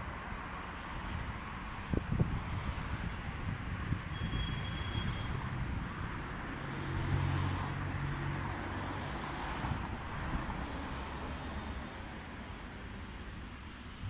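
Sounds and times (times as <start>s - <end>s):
wind buffeting microphone: 1.0s - 7.3s.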